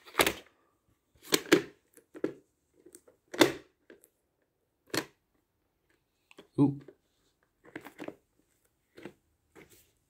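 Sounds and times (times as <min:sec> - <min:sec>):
plastic cassette case clacking: 0:01.2 - 0:04.1.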